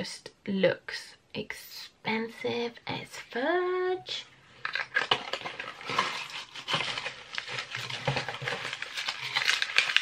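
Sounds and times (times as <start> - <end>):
paper crinkling and rustling: 4.6 - 10.0.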